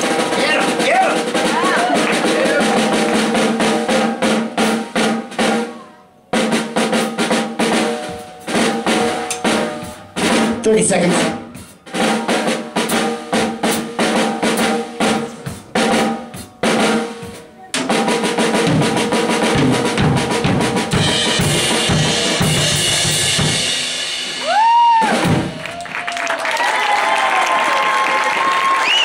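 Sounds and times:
fast drumming: 0.0 - 5.8, 6.4 - 28.8
cymbals ringing: 2.3 - 24.4.

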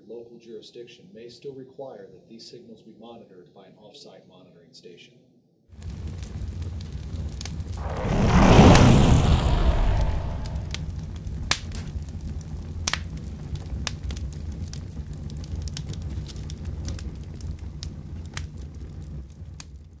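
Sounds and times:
fireball rumbling burn: 5.8 - 19.8
sharp crackles and pops: 5.8 - 20.0.

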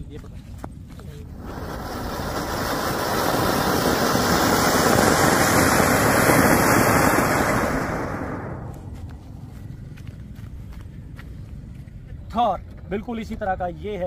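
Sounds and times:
firework fountain hissing: 1.1 - 9.4.

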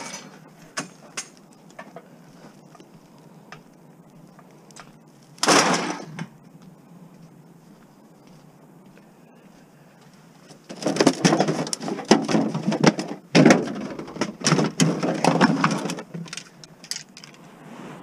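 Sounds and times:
plastic jugs and bags crinkling: 10.4 - 17.4.

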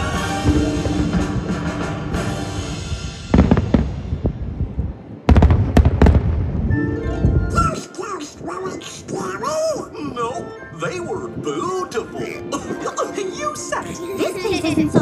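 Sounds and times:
fireworks bangs: 0.0 - 6.8.

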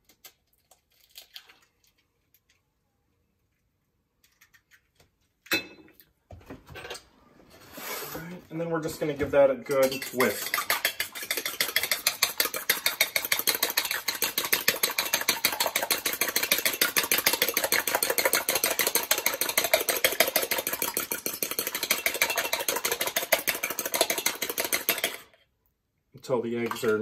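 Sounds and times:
whisk clattering in metal bowl: 9.7 - 25.2.

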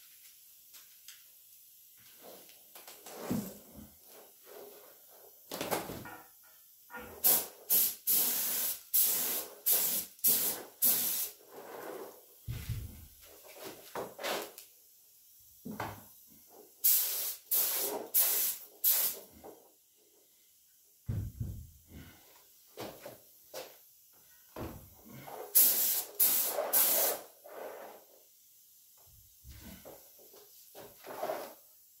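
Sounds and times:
paint spray gun hissing: 7.2 - 11.5, 16.8 - 19.3, 25.5 - 28.0.

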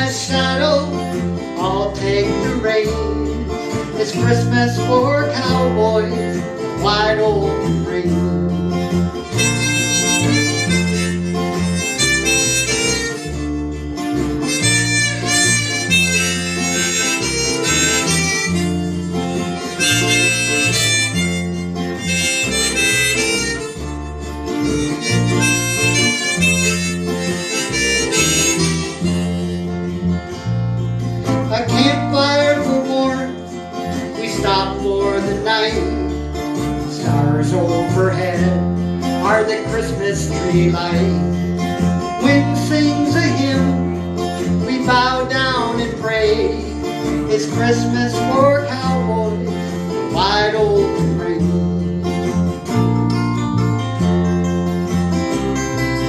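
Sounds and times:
strummed acoustic guitar: 0.0 - 56.0
walking electric bass line: 0.0 - 56.0
harmonica solo: 8.4 - 34.8.

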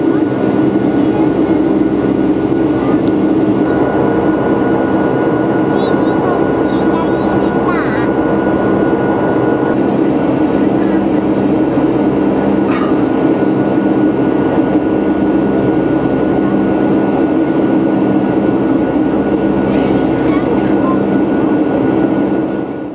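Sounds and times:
jet engine roar in cabin: 0.0 - 22.9
steady multi-tone hum: 0.0 - 22.9
rushing air: 7.4 - 10.6.

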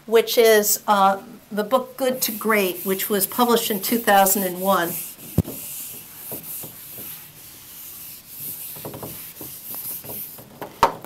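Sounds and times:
whiteboard eraser wiping: 2.2 - 10.5.

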